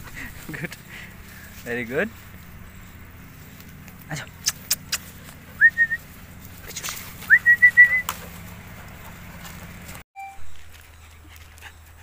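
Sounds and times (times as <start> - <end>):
person whistling: 5.6 - 6.0, 7.3 - 8.1.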